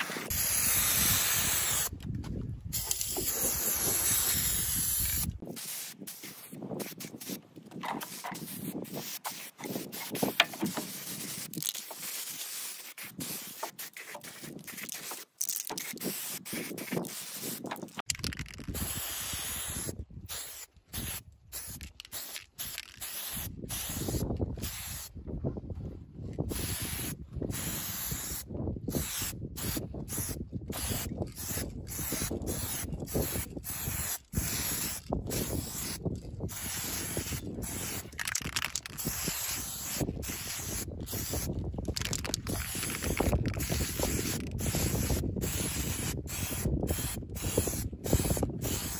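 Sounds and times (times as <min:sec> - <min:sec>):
spray paint can hissing: 0:00.0 - 0:01.9, 0:02.7 - 0:07.4, 0:08.0 - 0:25.1, 0:26.5 - 0:48.9.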